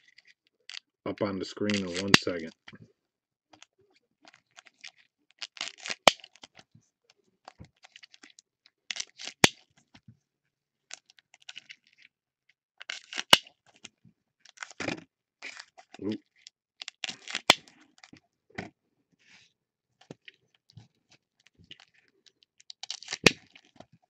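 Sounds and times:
foil wrappers crinkling and tearing: 4.3s - 6.5s, 8.9s - 9.5s, 12.8s - 13.4s, 16.8s - 17.6s, 22.8s - 23.8s.

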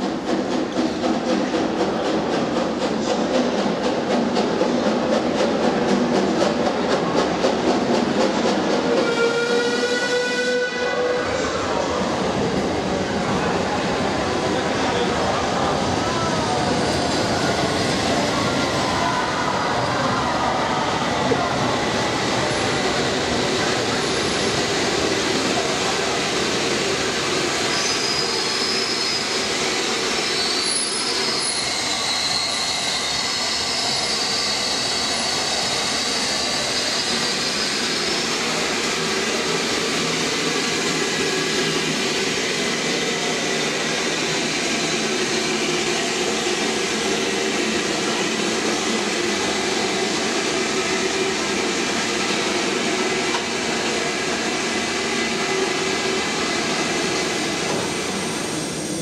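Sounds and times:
steam locomotive running in: 0.0s - 59.0s
train wheel squeal: 8.6s - 11.6s, 22.2s - 25.7s, 27.2s - 51.2s.

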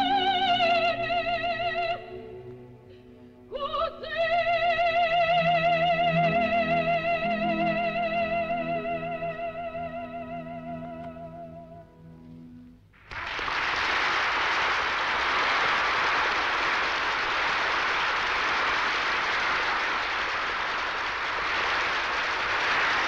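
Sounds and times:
audience applause: 13.0s - 23.0s.

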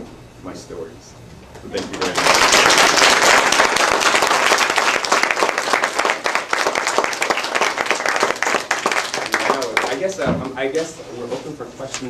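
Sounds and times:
audience applauding: 1.8s - 10.2s.

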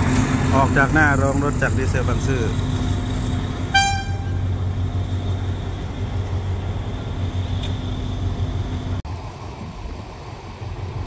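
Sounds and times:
diesel locomotive engine drone: 0.0s - 11.0s.

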